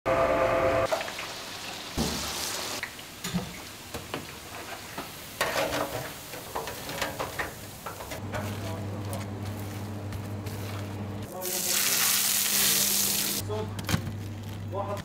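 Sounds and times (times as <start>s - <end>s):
food sizzling in oil: 0.9s - 8.2s, 10.4s - 13.4s.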